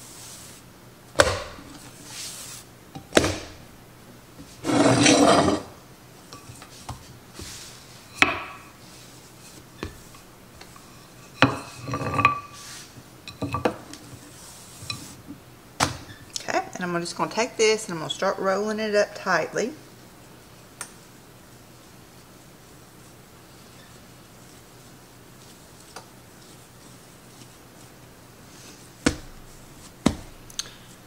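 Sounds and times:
rolling pin rolling dough: 0.0s - 3.5s, 4.4s - 5.7s, 6.4s - 15.3s, 21.5s - 31.0s
rolling pin knocking on countertop: 30.0s - 30.3s.

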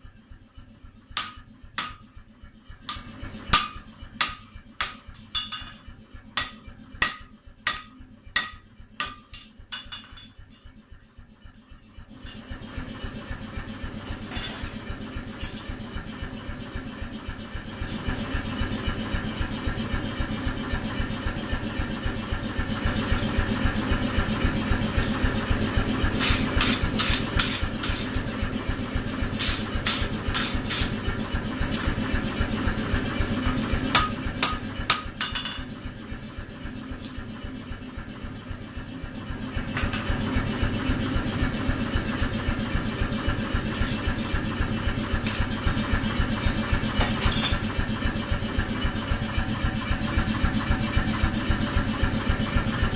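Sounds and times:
throbbing mechanical drone: 0.0s - 52.9s
metallic clanks: 2.9s - 10.7s
wire brush scraping hot steel: 26.2s - 28.2s.

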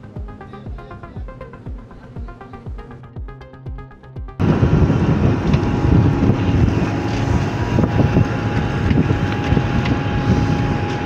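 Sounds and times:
boat engine rumble: 4.4s - 11.0s
wind buffeting microphone: 4.4s - 11.0s.

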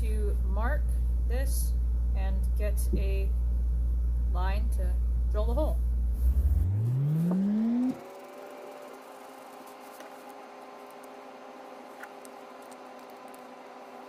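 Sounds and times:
motor humming: 6.1s - 14.0s.

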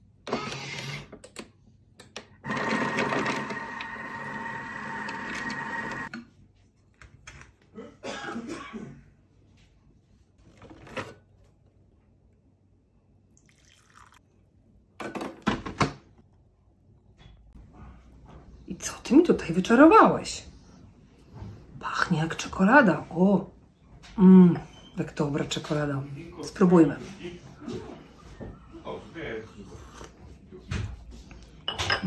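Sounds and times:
food processor whirring: 2.4s - 6.1s.

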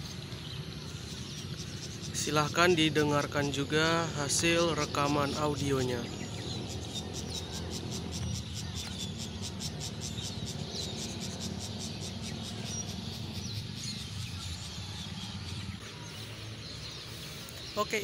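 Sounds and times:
bird chirps: 0.0s - 18.0s
low steady rumble: 0.0s - 18.0s
insect chirping in rapid pulses: 4.2s - 15.8s.

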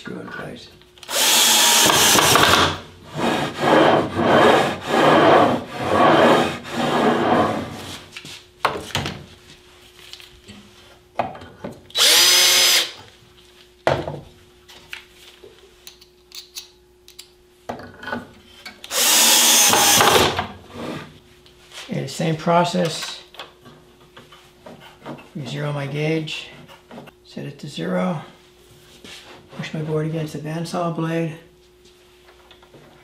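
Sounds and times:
drill motor high whine: 1.1s - 2.7s, 12.0s - 13.0s, 18.9s - 20.3s
cordless drill running: 1.1s - 2.8s, 12.0s - 13.0s, 18.9s - 20.4s
tools clicking and knocking: 15.8s - 18.8s.

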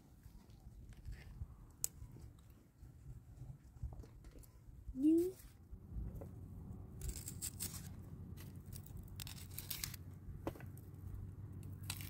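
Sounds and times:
onions crunching onto metal skewers: 7.0s - 10.1s, 11.6s - 12.0s.

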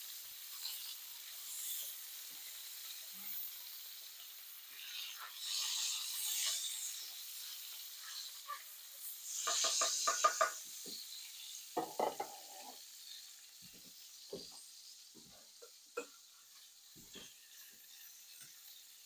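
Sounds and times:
batter sizzling in a frying pan: 0.0s - 19.0s
utensil scraping and clinking on pan: 9.3s - 10.6s, 11.8s - 12.8s.

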